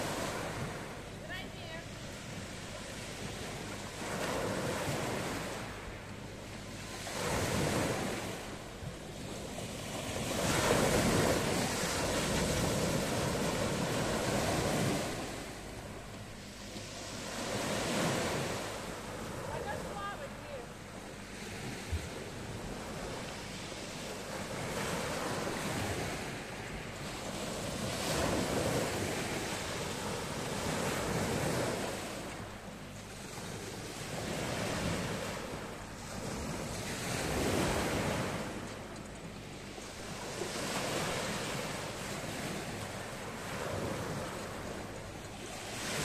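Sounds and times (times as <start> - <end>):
waves washing up pebble beach: 9.2 - 15.5.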